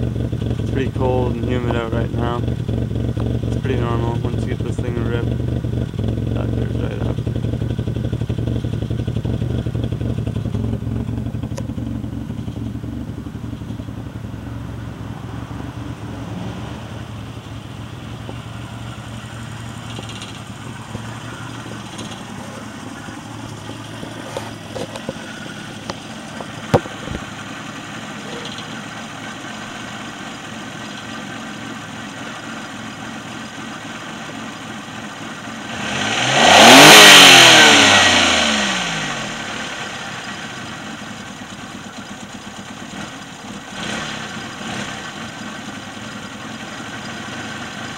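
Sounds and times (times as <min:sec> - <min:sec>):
car engine idling with loping beat: 0:00.0 - 0:47.9.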